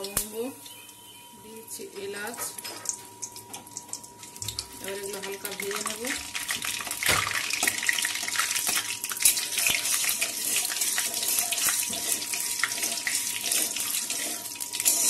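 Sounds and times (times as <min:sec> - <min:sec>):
spices sizzling in hot oil: 0:00.0 - 0:15.0
metal spatula scraping pan: 0:09.2 - 0:15.0.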